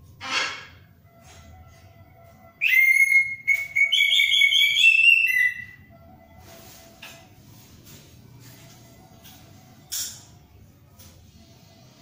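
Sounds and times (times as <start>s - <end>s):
thrush whistled song: 2.6s - 6.0s.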